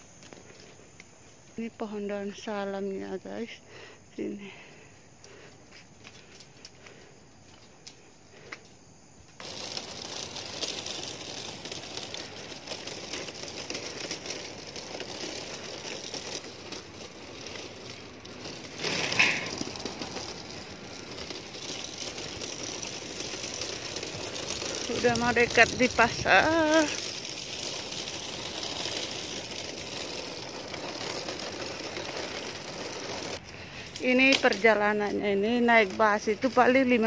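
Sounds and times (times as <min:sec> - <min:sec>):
footsteps walking: 0:00.0 - 0:01.6
steady outdoor hiss: 0:00.0 - 0:37.0.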